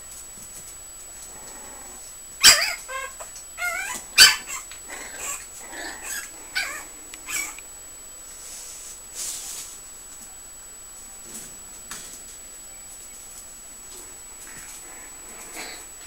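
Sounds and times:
puppies yipping and yelping: 2.4s - 7.6s.

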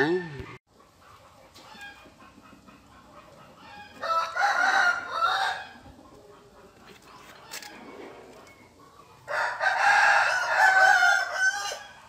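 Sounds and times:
rooster crowing: 3.6s - 5.8s, 9.3s - 12.0s.

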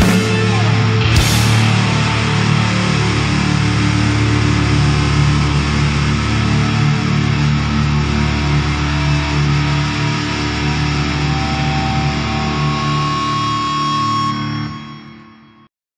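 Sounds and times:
high held tone: 0.0s - 4.2s
distorted electric guitars: 0.0s - 15.4s.

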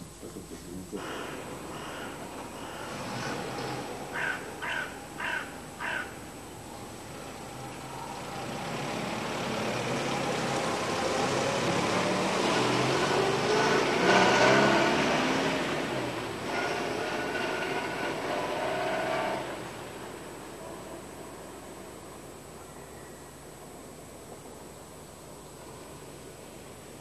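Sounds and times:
car approaching: 0.0s - 22.6s
crow cawing: 1.2s - 2.2s, 4.1s - 6.2s.

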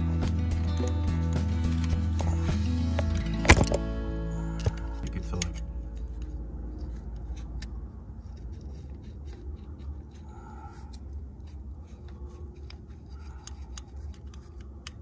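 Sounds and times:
low steady rumble: 0.0s - 15.0s
metal pick scraping and clicking: 4.6s - 15.0s.

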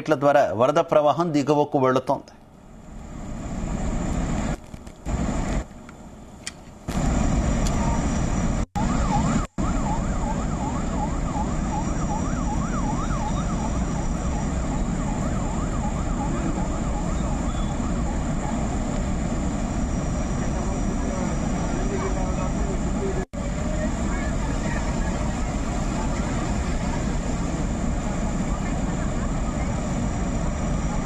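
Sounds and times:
siren rising and falling: 6.9s - 23.3s
floodwater roaring down spillway: 6.9s - 31.0s.

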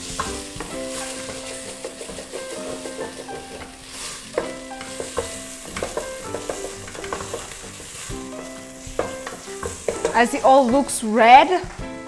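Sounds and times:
sauce sizzling: 0.0s - 12.0s
wooden spoon scraping pot: 0.1s - 8.1s, 8.8s - 11.7s
spoon knocking against pot: 8.9s - 10.9s.

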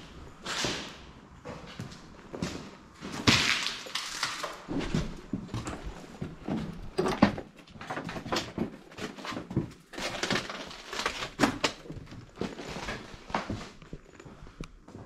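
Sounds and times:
footsteps crunching over rubble: 0.1s - 15.0s.

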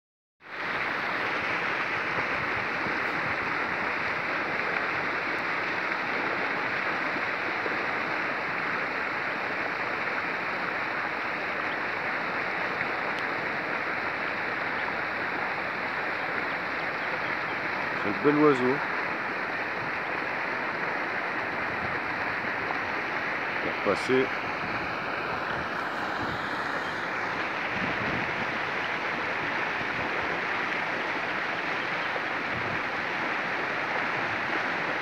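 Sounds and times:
steady rushing noise: 0.5s - 11.0s, 17.6s - 35.0s.

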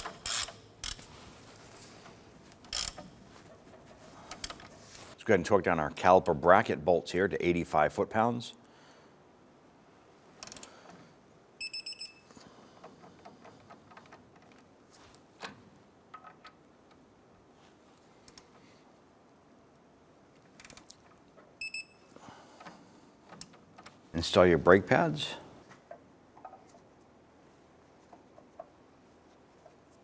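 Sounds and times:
torque wrench clicking: 0.0s - 1.1s, 2.7s - 3.1s
light clicks and handling noise: 0.0s - 5.2s, 12.3s - 18.8s, 19.7s - 24.2s.

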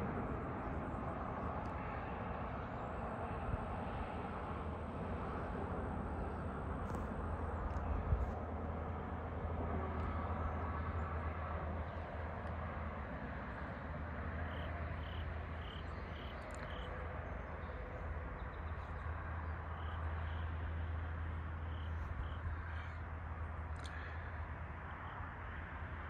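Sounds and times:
steady low rumble: 0.0s - 26.0s.

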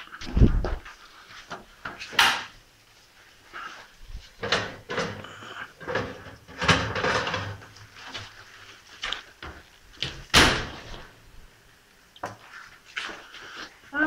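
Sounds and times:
metal baking tray clattering: 4.4s - 7.7s
oven door opening: 10.3s - 11.0s.

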